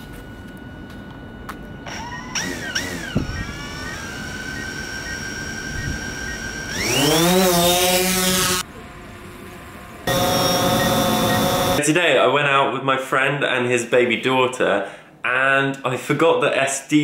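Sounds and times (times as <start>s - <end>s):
drone propellers whining: 0.0s - 11.8s.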